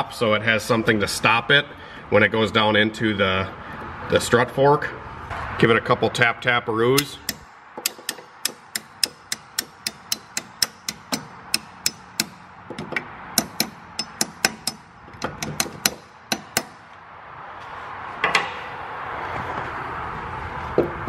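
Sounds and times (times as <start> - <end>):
hammer tapping metal: 7.0 - 17.0.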